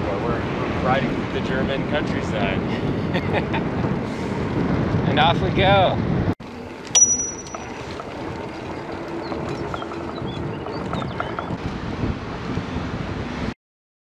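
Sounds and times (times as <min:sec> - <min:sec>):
wind rushing over microphone: 0:00.0 - 0:06.4, 0:09.3 - 0:13.6
bicycle riding noise: 0:06.4 - 0:13.5
sharp metallic ping: 0:07.0 - 0:07.8.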